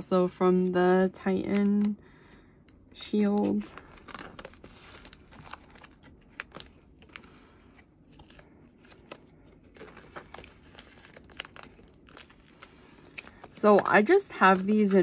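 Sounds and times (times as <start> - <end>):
plastic pocket pages crinkling: 3.1 - 15.0.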